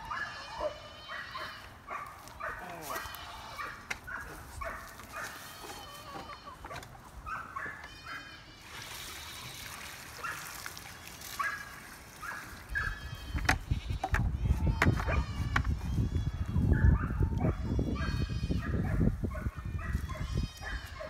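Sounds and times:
hens clucking: 0:00.0 - 0:09.8
water pouring and splashing: 0:08.6 - 0:12.7.

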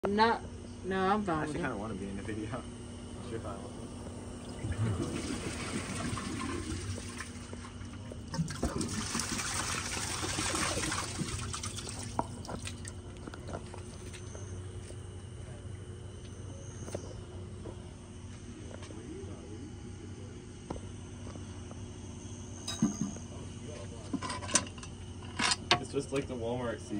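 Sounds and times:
toilet flushing: 0:04.4 - 0:13.0.

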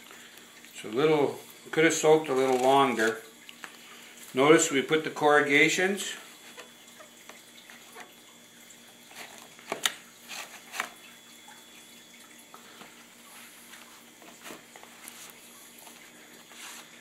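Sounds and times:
wet cardboard handling: 0:02.2 - 0:03.8, 0:12.8 - 0:17.0.

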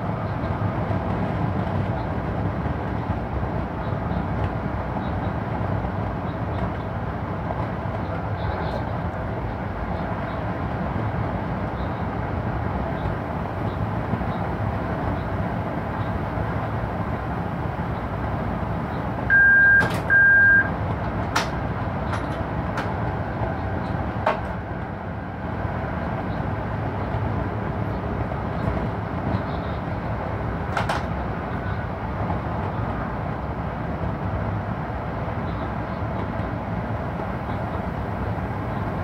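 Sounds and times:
locomotive running gear rumble: 0:00.0 - 0:39.0
short high beeps: 0:19.3 - 0:20.7.

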